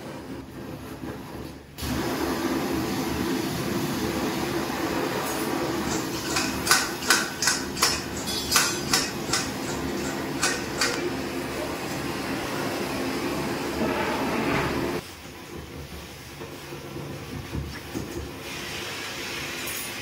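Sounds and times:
metal kitchen utensils clinking: 0:05.8 - 0:12.0.

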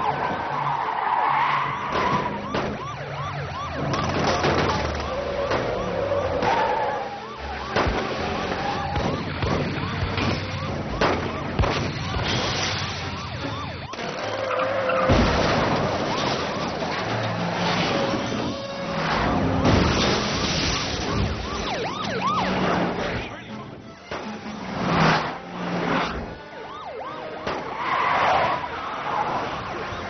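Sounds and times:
car engines running: 0:00.0 - 0:30.0
police sirens wailing: 0:00.0 - 0:30.0
bangs and impacts: 0:01.9 - 0:03.0, 0:07.6 - 0:14.0, 0:15.0 - 0:21.6.

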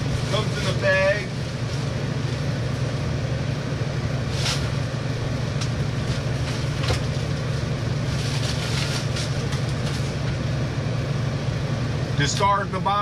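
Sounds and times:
air conditioner humming: 0:00.0 - 0:13.0.

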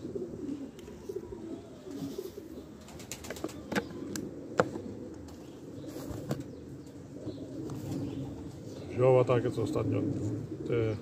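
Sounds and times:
pigeons cooing: 0:00.0 - 0:11.0.

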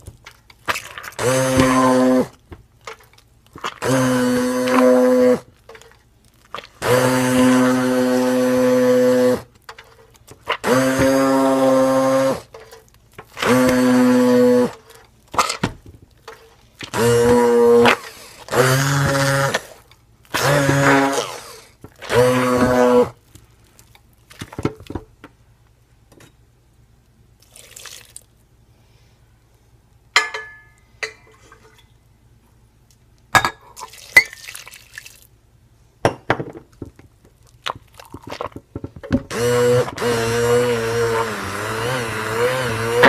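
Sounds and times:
stick blender running: 0:01.2 - 0:02.3, 0:03.8 - 0:05.4, 0:06.8 - 0:09.5, 0:10.5 - 0:12.5, 0:13.4 - 0:14.8, 0:16.8 - 0:23.2, 0:39.3 - 0:43.0.

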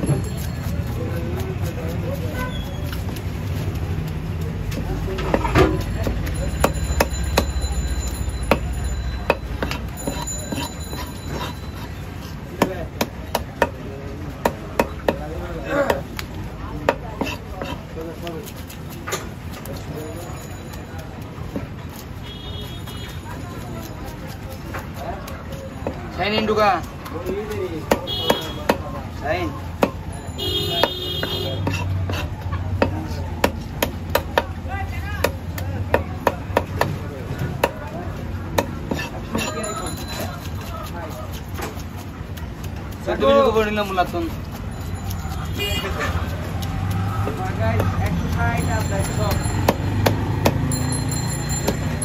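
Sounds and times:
knife chopping on wooden block: 0:08.4 - 0:11.9, 0:12.5 - 0:19.4, 0:27.2 - 0:28.9, 0:29.7 - 0:30.1, 0:30.7 - 0:34.6, 0:35.2 - 0:37.9, 0:38.5 - 0:39.6, 0:49.3 - 0:50.7.

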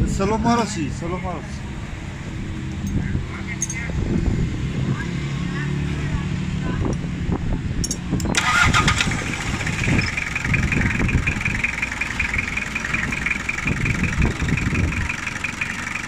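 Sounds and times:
diesel engine knocking: 0:08.3 - 0:16.0.

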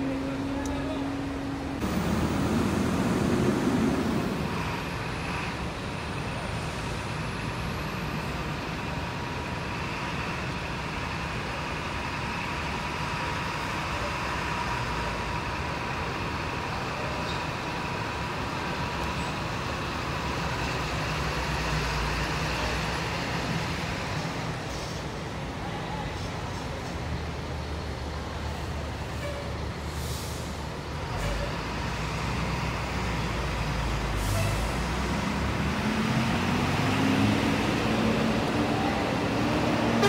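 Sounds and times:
coach diesel engine running: 0:00.0 - 0:06.5.

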